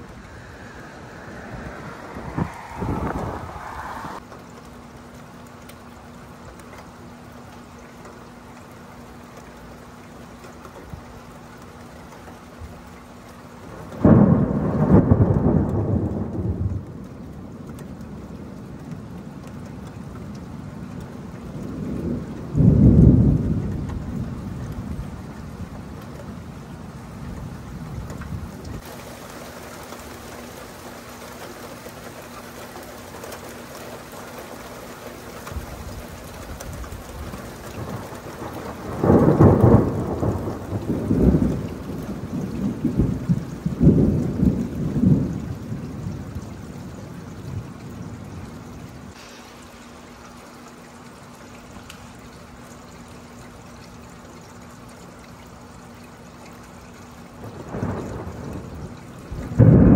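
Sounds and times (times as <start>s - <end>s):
thunder rumbling: 0.0s - 4.2s, 13.6s - 31.4s, 33.6s - 50.0s, 57.4s - 59.9s
steady rain: 0.0s - 59.9s.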